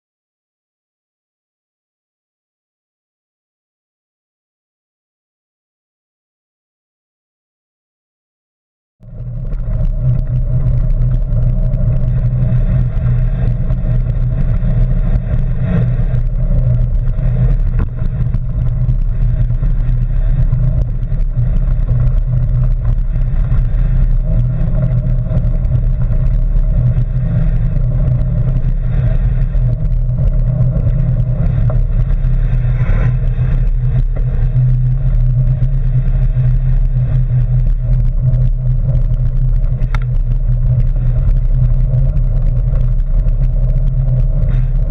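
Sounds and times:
bike rolling on gravel: 9.1 - 44.9.

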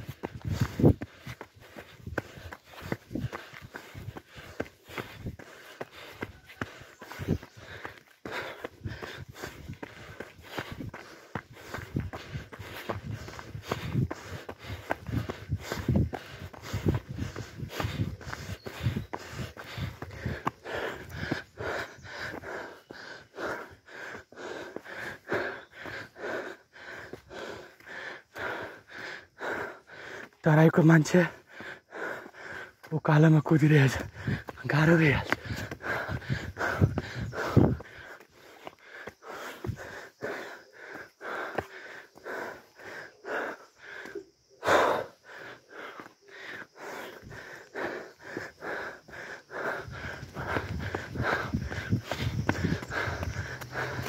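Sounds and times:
person panting: 0.0 - 54.0.

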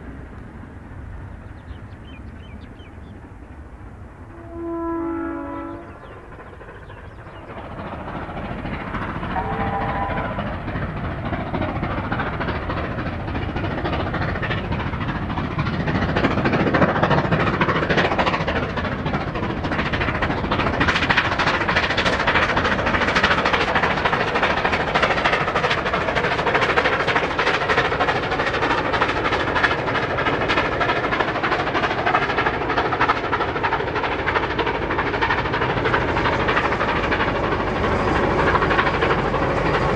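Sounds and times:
steam locomotive exhaust: 0.0 - 39.9
train wheel noise: 0.0 - 39.9
steam locomotive whistle: 4.3 - 6.1, 9.2 - 10.6.

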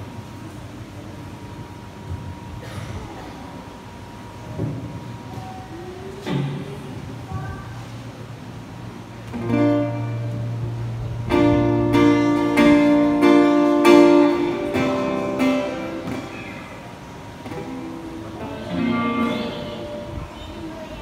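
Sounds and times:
strummed guitar chords: 9.3 - 20.6
live band music: 9.4 - 16.8, 17.4 - 20.1.

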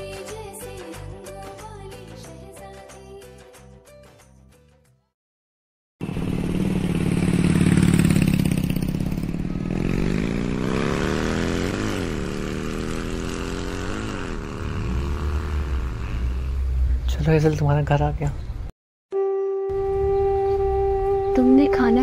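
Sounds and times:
vehicle engine accelerating: 6.0 - 17.6.

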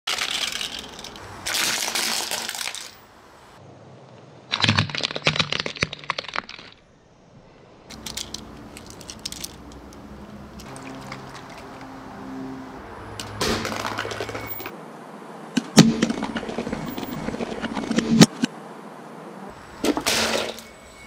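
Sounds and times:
plastic toy cars cracking: 0.1 - 3.0, 4.5 - 6.8, 7.9 - 9.9
plastic pieces clicking: 7.9 - 10.0.

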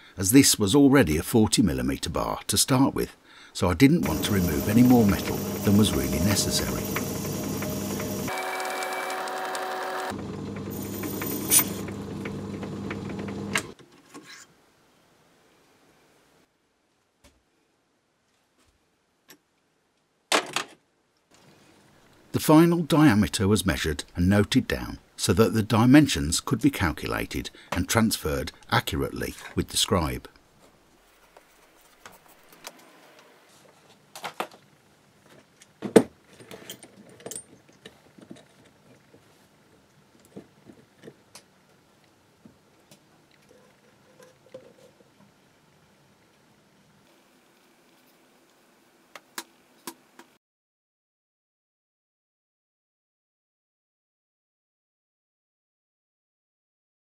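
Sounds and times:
lathe motor hum: 4.0 - 13.7.

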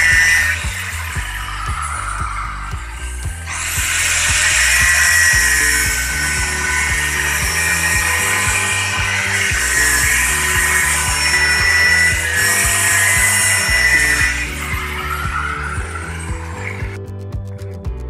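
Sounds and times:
angle grinder cutting steel pipe: 0.0 - 17.0
background music with steady beat: 0.0 - 18.0.

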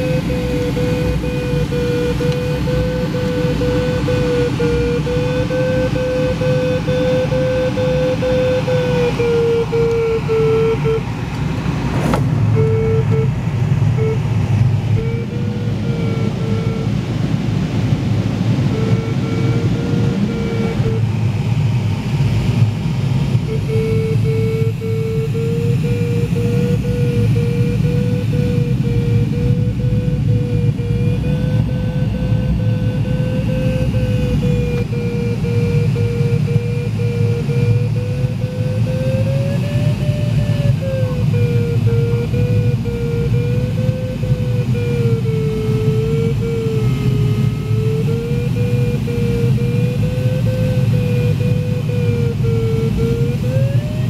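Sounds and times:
variometer beeping: 0.0 - 22.4, 23.1 - 54.0
rushing airflow: 0.0 - 54.0
air rushing past canopy: 9.7 - 15.0
short electronic beeps: 12.0 - 17.1.

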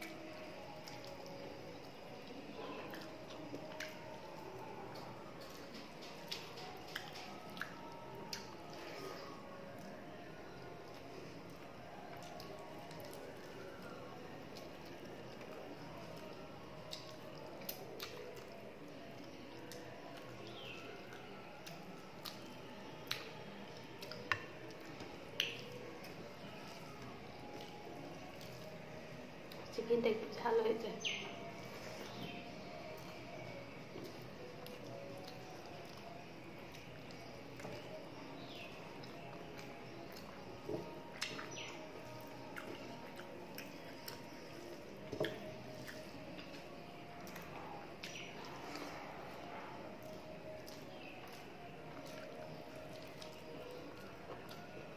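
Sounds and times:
wet chewing: 0.0 - 29.7, 31.1 - 54.9
sharp wet clicks: 4.9 - 8.6, 19.2 - 26.5.

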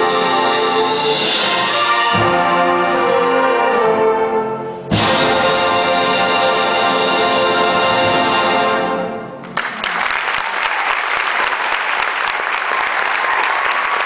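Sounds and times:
audience applause: 9.4 - 14.0.

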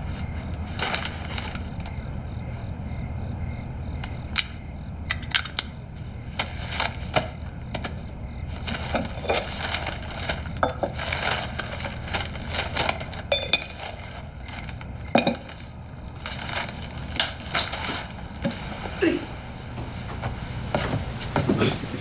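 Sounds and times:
paper rustling: 0.0 - 1.9, 6.3 - 19.1.

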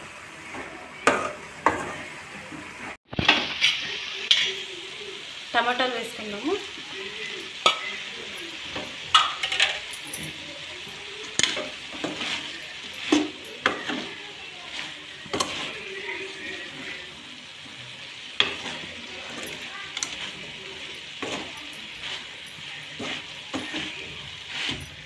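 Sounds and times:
frying sizzle in oil: 0.0 - 25.0
metal spoon scraping metal pan: 18.4 - 25.0.

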